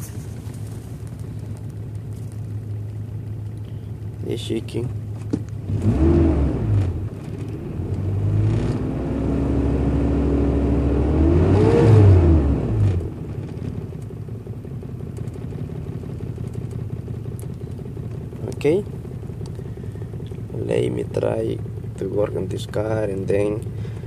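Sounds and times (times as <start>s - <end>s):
car engine revving: 5.6s - 13.8s.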